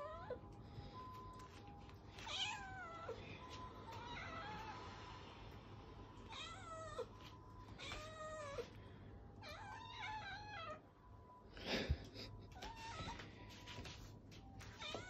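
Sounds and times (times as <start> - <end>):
cats meowing: 0.0 - 0.5, 2.2 - 3.2, 3.8 - 4.9, 6.3 - 8.7, 9.4 - 10.8, 12.5 - 13.3.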